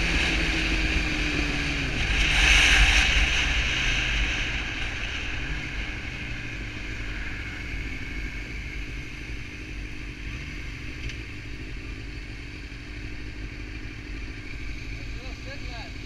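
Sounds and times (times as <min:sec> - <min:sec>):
wind noise on microphone: 0:00.0 - 0:08.7
motorcycle engine running: 0:00.0 - 0:16.0.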